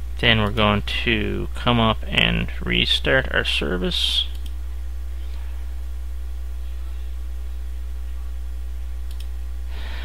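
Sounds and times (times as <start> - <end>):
electrical mains hum: 0.0 - 10.0
faint mouse clicks: 9.1 - 9.3.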